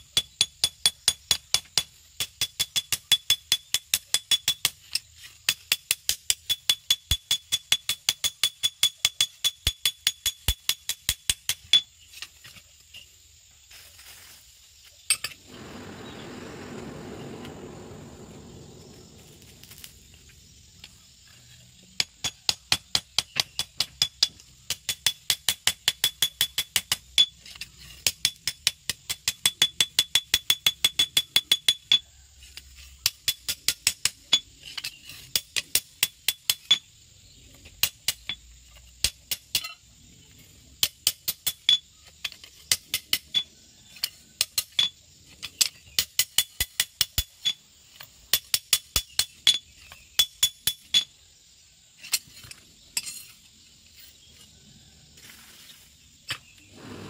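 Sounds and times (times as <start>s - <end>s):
rushing noise: 15.4s - 20.4s.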